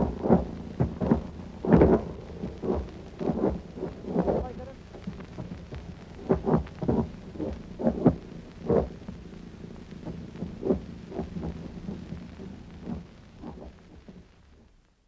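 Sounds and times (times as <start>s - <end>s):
anti-aircraft gunfire: 0.0s - 13.8s
low steady drone: 0.0s - 14.9s.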